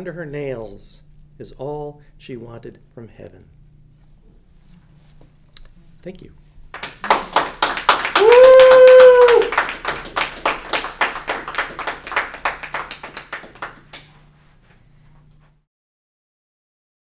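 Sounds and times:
audience applauding: 6.7s - 14.1s
person whooping: 7.9s - 9.8s.

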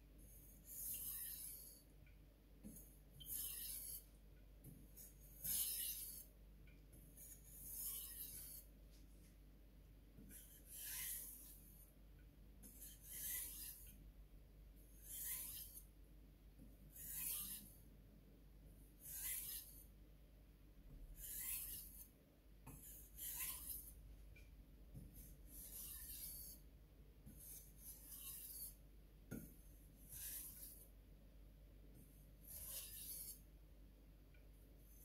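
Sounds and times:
knife scraping on whetstone: 0.6s - 1.9s, 2.6s - 4.1s, 5.0s - 6.3s, 7.2s - 8.7s, 10.2s - 11.8s, 12.6s - 14.0s, 15.0s - 15.9s, 17.0s - 17.8s, 19.0s - 19.9s, 21.1s - 22.1s, 22.7s - 24.0s, 25.2s - 26.6s, 27.2s - 30.9s, 32.4s - 33.4s.

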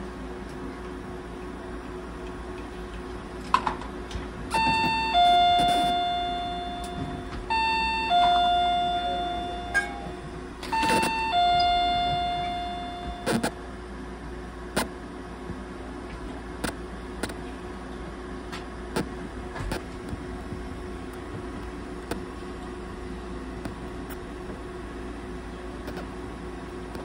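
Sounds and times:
low hum: 4.2s - 13.7s
two-tone electronic chime: 4.6s - 13.4s.

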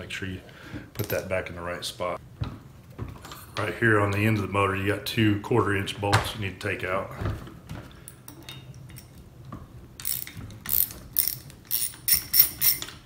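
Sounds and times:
socket ratchet clicking: 10.0s - 13.0s.

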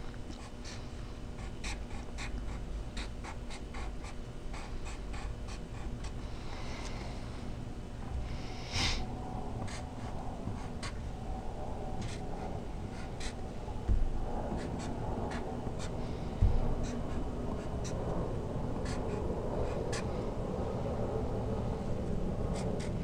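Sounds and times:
pencil scratching on paper: 0.4s - 6.2s, 9.6s - 11.1s, 12.0s - 18.1s, 18.8s - 20.2s, 22.5s - 23.0s.

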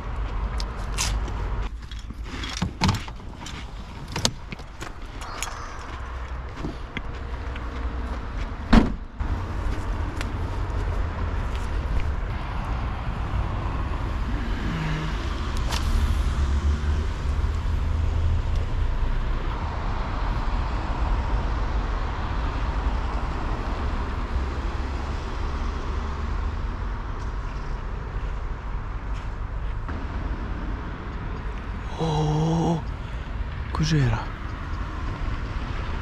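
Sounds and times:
road traffic rumble: 0.0s - 36.0s.

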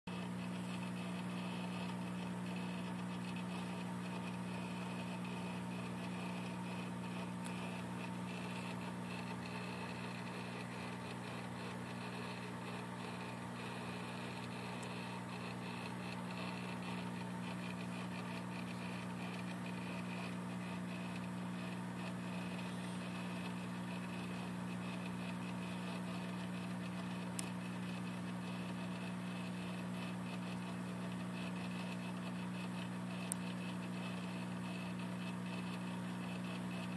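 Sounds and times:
aquarium equipment hum: 0.1s - 36.9s.

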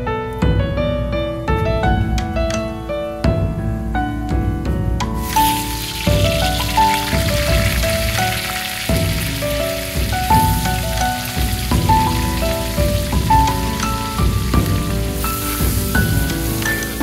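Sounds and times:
background music with held notes: 0.0s - 17.0s
garlic sizzling in hot oil: 5.1s - 17.0s.

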